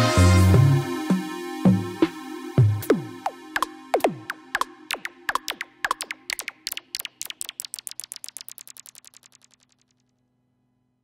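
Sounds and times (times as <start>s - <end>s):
synth zaps falling in pitch: 3.2s - 10.0s.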